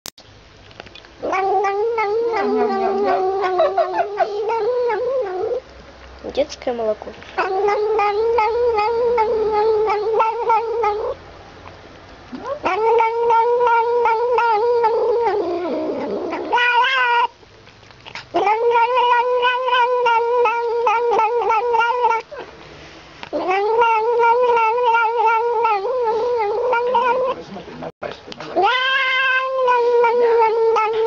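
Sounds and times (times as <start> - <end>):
cat humming vocalizations: 1.2 - 5.7, 7.4 - 11.2, 12.3 - 17.4, 18.0 - 22.5, 23.3 - 27.4, 28.6 - 31.0.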